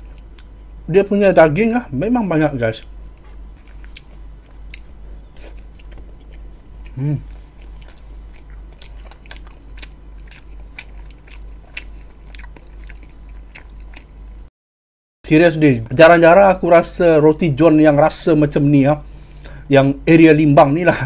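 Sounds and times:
mouth clicks while chewing: 2.8s - 14.1s.

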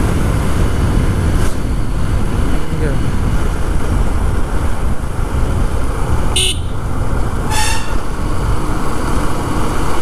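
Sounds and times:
motorcycle riding rumble: 0.0s - 10.0s
motorcycle horn toots: 6.4s - 6.8s, 7.5s - 8.1s.

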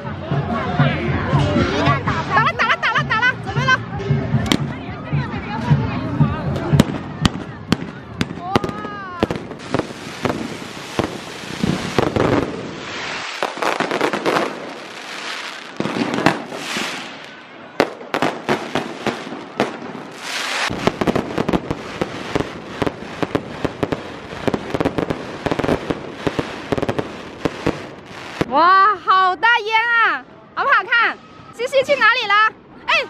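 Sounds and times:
fireworks bangs and crackling pops: 6.5s - 28.6s.

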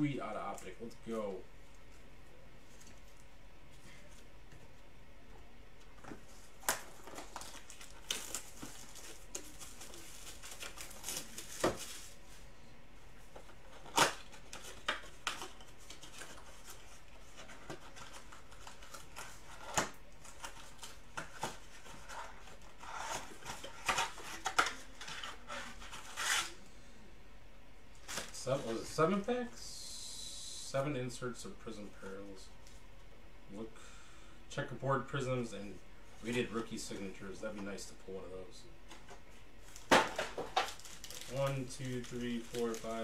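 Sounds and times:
wrapping tearing and rustling: 6.4s - 12.4s, 13.4s - 26.6s, 39.6s - 43.0s.

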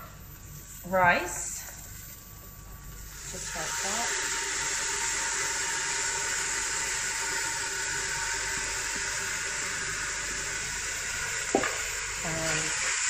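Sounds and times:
onions sizzling in a pot: 3.0s - 13.0s.

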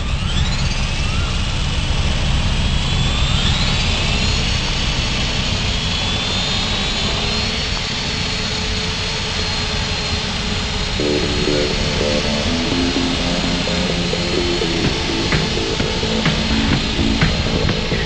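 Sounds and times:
rc helicopter rotor whine: 0.0s - 12.4s.

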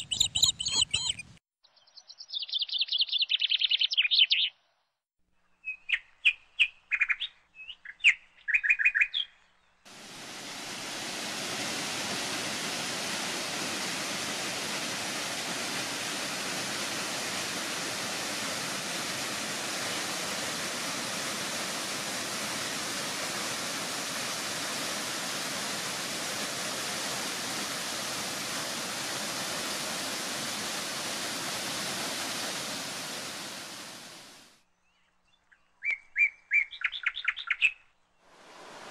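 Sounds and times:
small birds chirping: 0.0s - 4.8s, 5.4s - 9.8s, 34.7s - 38.2s
waterfall rushing: 9.9s - 34.5s, 38.4s - 38.9s.

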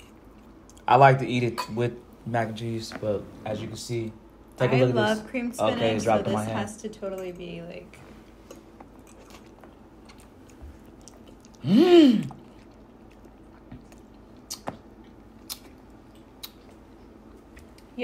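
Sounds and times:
man chewing: 8.2s - 17.9s
man humming mmm: 11.6s - 12.5s.

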